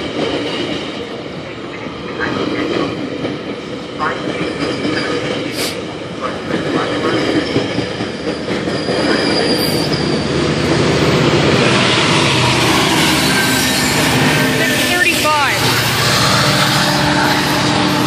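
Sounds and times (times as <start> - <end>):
diesel locomotive passing: 0.0 - 18.0
train coaches rumbling past: 0.0 - 18.0
high wheel squeal: 8.0 - 10.6, 11.6 - 18.0.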